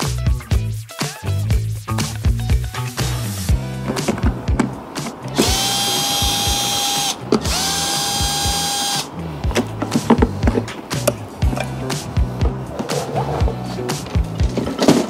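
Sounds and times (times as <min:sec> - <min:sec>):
background music with beat: 0:00.0 - 0:15.0
cordless drill whining: 0:05.3 - 0:09.1.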